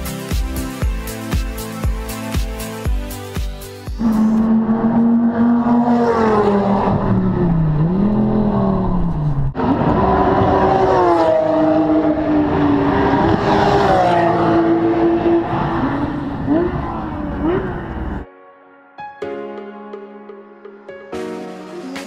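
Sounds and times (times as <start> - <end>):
racing car engines passing: 4.0 - 18.2.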